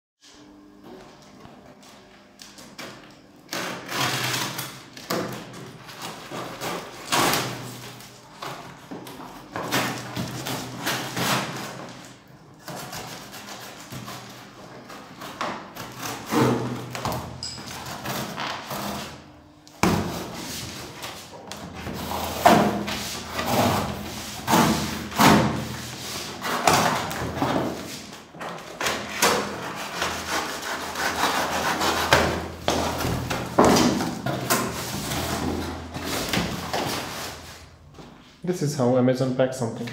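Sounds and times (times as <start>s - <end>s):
cardboard rubbing and thudding: 19.8s - 28.1s, 28.7s - 37.8s.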